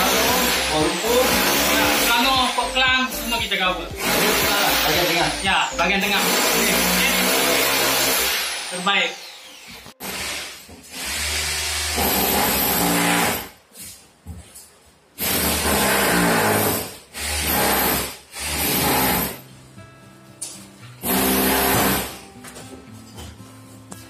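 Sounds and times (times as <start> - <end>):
background music with deep bass: 0.0 - 7.2.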